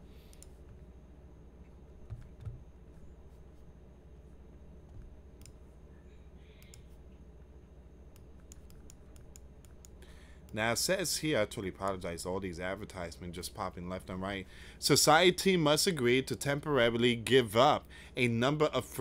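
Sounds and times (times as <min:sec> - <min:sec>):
low steady hum: 0:00.0 - 0:19.0
computer mouse clicks: 0:00.2 - 0:00.8, 0:04.9 - 0:05.6, 0:06.6 - 0:07.0, 0:08.1 - 0:10.6.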